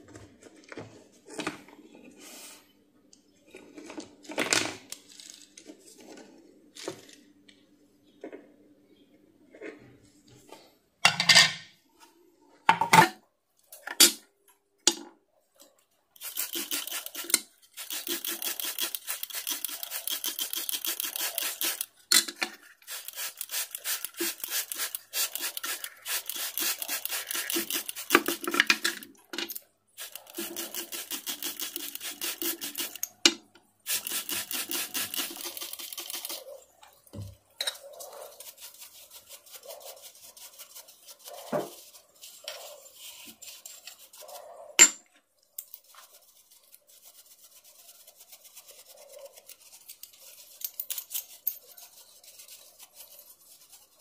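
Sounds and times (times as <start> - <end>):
fast hand scraping strokes: 16.2 - 22.0, 22.8 - 28.6, 30.0 - 33.0, 33.9 - 36.6, 38.1 - 44.5, 45.7 - 54.0.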